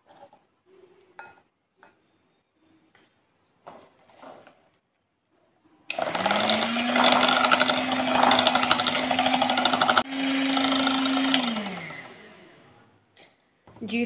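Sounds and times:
electric hand mixer humming: 5.9s - 12.8s.

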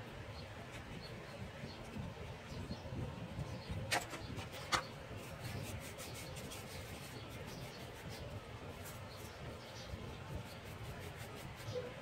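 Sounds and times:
paintbrush bristles rubbing: 5.2s - 12.0s.

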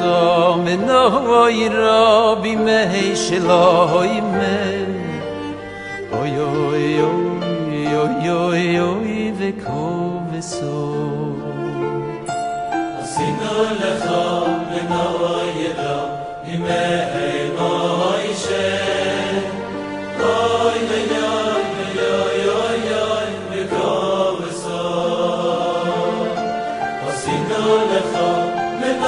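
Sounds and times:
chant-like singing: 13.0s - 29.0s.

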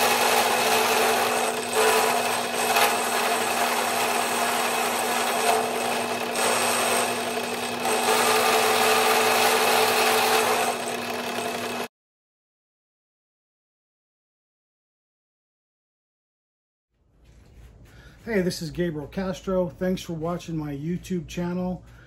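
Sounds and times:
milling cutter cutting metal: 0.0s - 11.9s
steady motor hum: 0.0s - 11.9s.

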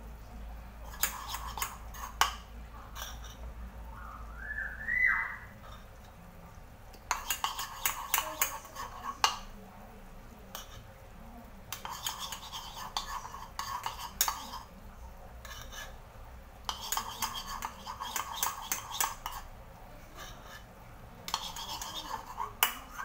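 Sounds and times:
metal spoon clinking in a bowl: 0.9s - 2.4s, 7.1s - 9.5s, 11.7s - 14.7s, 16.7s - 19.5s, 21.3s - 23.0s.

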